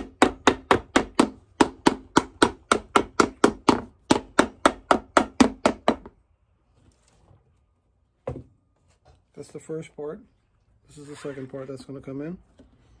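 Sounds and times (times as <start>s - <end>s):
hammer striking leather: 0.0s - 6.1s.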